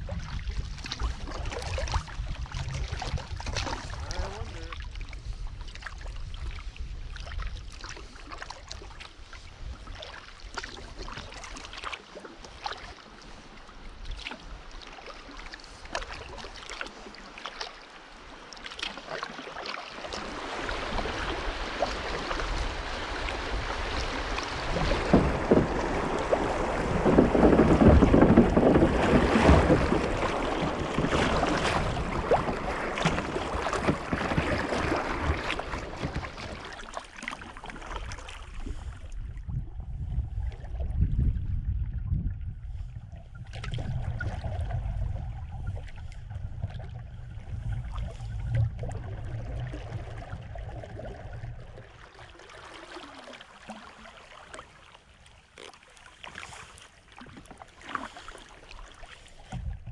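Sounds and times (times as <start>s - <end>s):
wind on microphone: 0.0s - 9.9s, 20.2s - 36.7s, 38.3s - 52.0s, 59.5s - 59.9s
small water splashes: 0.0s - 59.9s
river water rushing and splashing: 14.4s - 38.5s.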